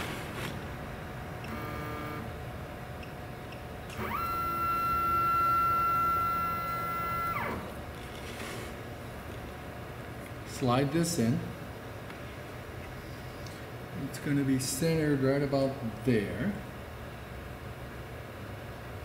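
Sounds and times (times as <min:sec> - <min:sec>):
stepper motors whining: 0:03.9 - 0:07.8.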